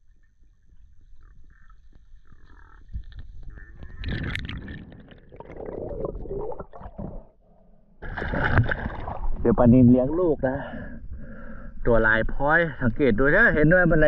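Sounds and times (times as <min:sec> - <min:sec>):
bubbles gurgling underwater: 0:03.7 - 0:07.3.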